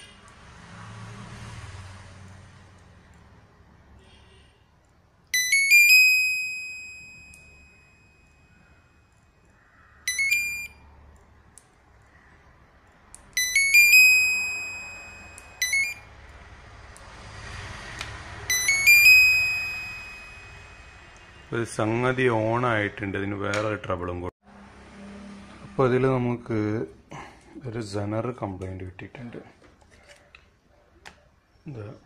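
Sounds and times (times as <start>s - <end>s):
electronic rising chime: 10.1s - 10.8s, 13.4s - 16.0s, 18.5s - 21.2s
short electronic beeps: 10.1s - 10.8s, 13.4s - 16.0s, 18.5s - 21.0s.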